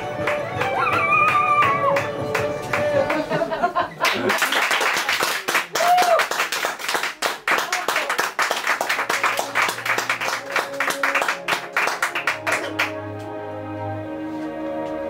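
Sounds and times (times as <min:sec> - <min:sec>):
slow ambient music: 0:00.0 - 0:04.0, 0:08.6 - 0:15.0
audience clapping: 0:00.0 - 0:13.3.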